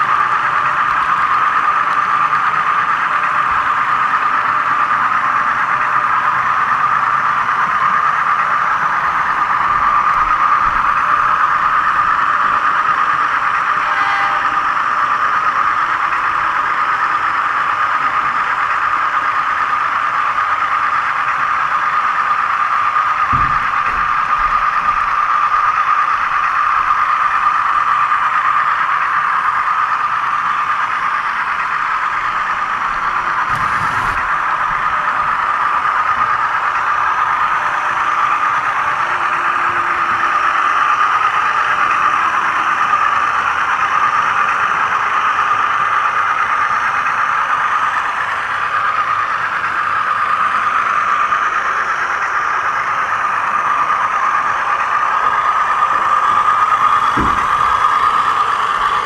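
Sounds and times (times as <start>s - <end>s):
model train whirring on track: 0.0s - 59.0s
short knock: 57.1s - 57.7s.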